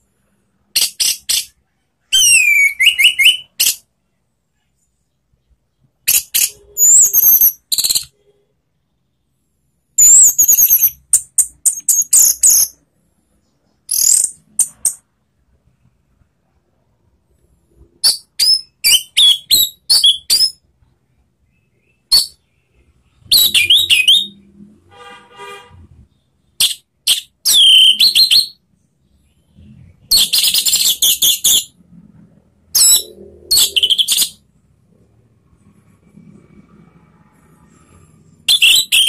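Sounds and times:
bird singing whistled phrases: 0:02.1 - 0:03.8, 0:18.0 - 0:20.6, 0:23.3 - 0:24.4, 0:26.6 - 0:28.6, 0:30.1 - 0:31.7, 0:32.8 - 0:34.4, 0:38.5 - 0:39.0.

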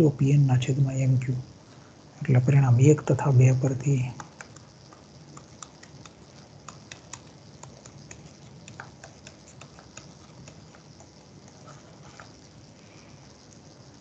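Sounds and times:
low background hiss: 0:00.0 - 0:14.0
stylus tapping on tablet: 0:05.3 - 0:10.8.

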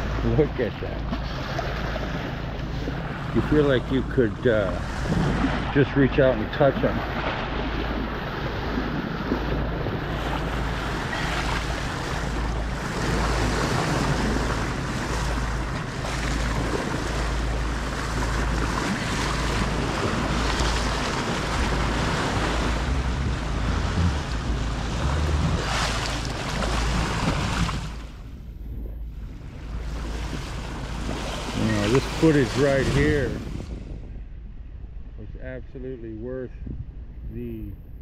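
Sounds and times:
bow wave rushing and splashing: 0:00.0 - 0:34.2
wind buffeting microphone: 0:00.0 - 0:38.0.

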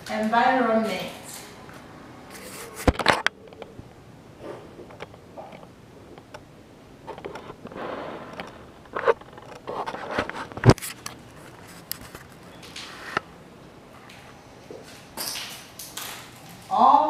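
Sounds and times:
marker scraping on whiteboard: 0:02.3 - 0:02.9.

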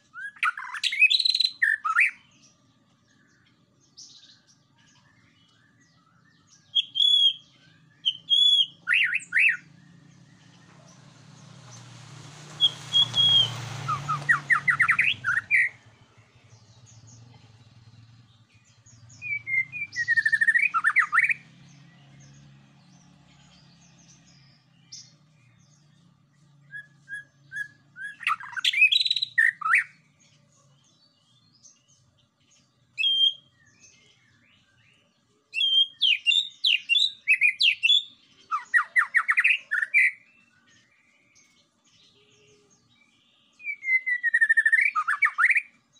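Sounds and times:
bird singing whistled phrases: 0:00.0 - 0:02.3, 0:05.2 - 0:10.0, 0:12.6 - 0:15.8, 0:18.9 - 0:21.4, 0:26.6 - 0:30.0, 0:33.0 - 0:34.0, 0:35.5 - 0:40.2, 0:42.2 - 0:45.8
rushing noise: 0:10.6 - 0:15.7.

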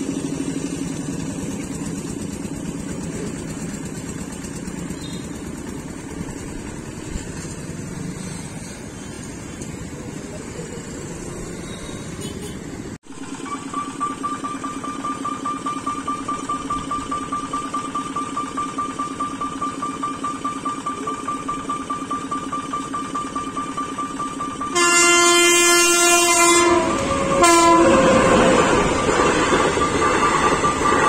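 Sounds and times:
motorcycles passing: 0:04.6 - 0:13.0
level crossing warning bell: 0:13.3 - 0:31.0.

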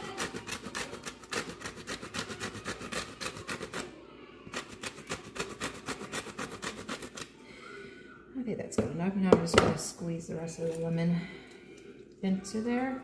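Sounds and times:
lemon rind rasping on grater: 0:00.0 - 0:03.8, 0:04.5 - 0:07.3.

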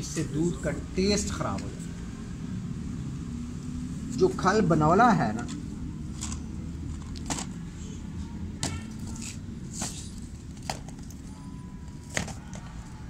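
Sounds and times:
plastic jars clacking together: 0:12.0 - 0:12.8.

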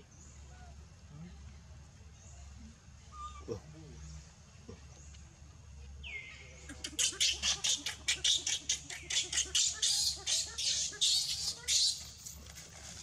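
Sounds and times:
baby monkey screaming: 0:06.7 - 0:12.1.

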